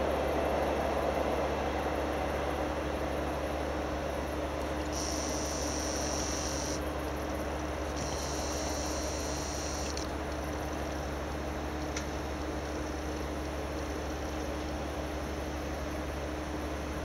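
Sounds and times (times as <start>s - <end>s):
low background hum: 0.0s - 17.0s
high insect trill: 4.9s - 6.9s, 8.0s - 10.1s.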